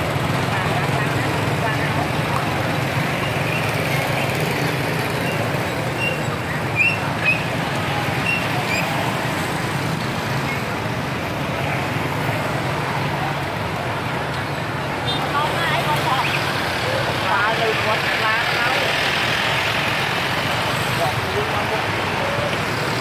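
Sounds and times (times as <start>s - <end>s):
motorbike traffic din: 0.0s - 23.0s.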